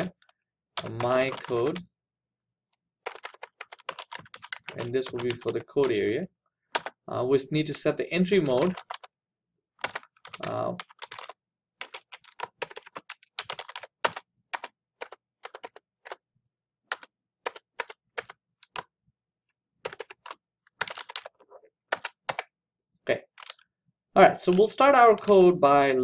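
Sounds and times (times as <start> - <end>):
typing on computer keyboard: 0.8 - 1.8, 3.0 - 6.0, 6.8 - 7.0, 8.6 - 9.1, 9.8 - 16.2, 16.9 - 18.9, 19.8 - 22.5, 23.2 - 23.6.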